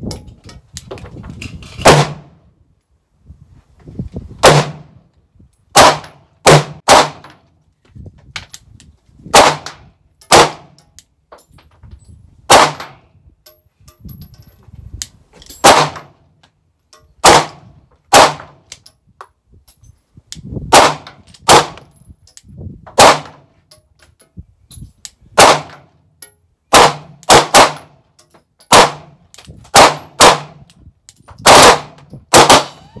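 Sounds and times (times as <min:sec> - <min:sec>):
pistol gunshots under metal roof: 0:01.8 - 0:02.5, 0:04.4 - 0:05.1, 0:05.7 - 0:07.5, 0:09.3 - 0:11.0, 0:12.5 - 0:13.2, 0:15.6 - 0:16.4, 0:17.2 - 0:18.8, 0:20.6 - 0:22.0, 0:22.9 - 0:23.5, 0:25.3 - 0:30.7, 0:31.3 - 0:32.9.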